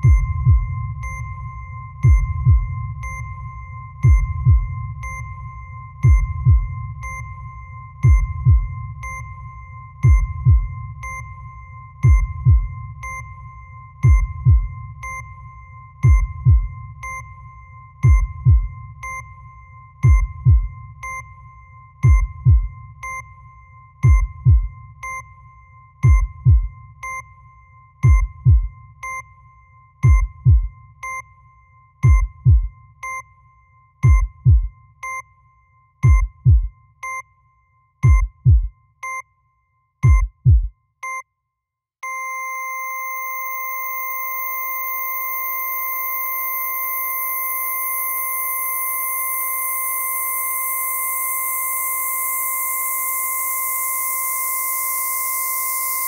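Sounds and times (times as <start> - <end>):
heartbeat thumps: 0.0 - 1.2, 2.0 - 3.2, 4.0 - 5.2, 6.0 - 7.2, 8.0 - 9.0, 10.0 - 11.0, 12.0 - 13.0, 14.0 - 14.9, 16.0 - 16.9, 18.0 - 18.8, 20.0 - 20.8, 22.0 - 22.8, 24.0 - 24.8, 26.0 - 26.8, 28.0 - 28.8, 30.0 - 30.8, 32.0 - 32.8, 34.0 - 34.8, 36.0 - 36.8, 38.0 - 38.8, 40.0 - 40.8
heart monitor beeps: 0.0 - 41.4, 42.0 - 56.0
flatline tone: 42.0 - 56.0.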